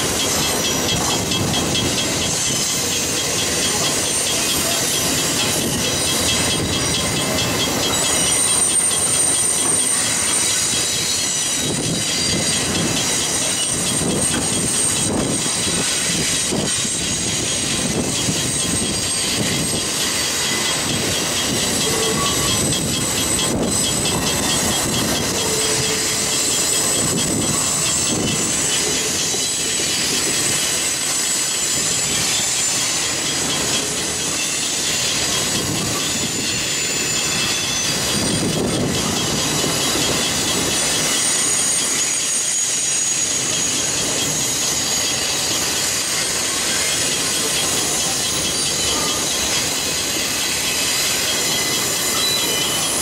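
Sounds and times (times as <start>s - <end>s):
high-pitched wheel squeal: 0.0s - 53.0s
train wheels rumbling and clattering: 0.0s - 53.0s.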